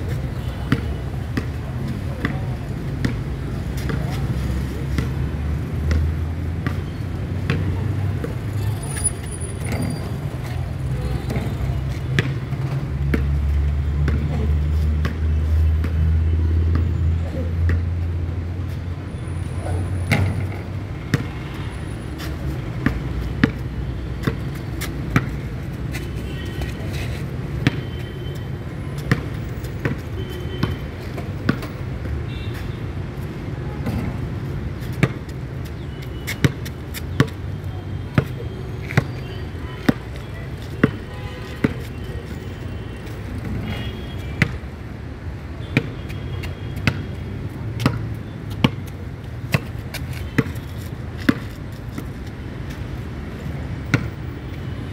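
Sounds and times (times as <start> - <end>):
low rumble of traffic: 0.0 - 54.9
basketball bouncing on hard court: 48.6 - 48.8.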